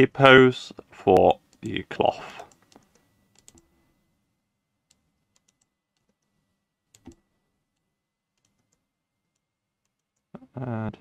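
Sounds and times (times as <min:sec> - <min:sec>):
keyboard and mouse clicks: 0:02.5 - 0:03.7, 0:04.8 - 0:06.3, 0:06.9 - 0:10.3.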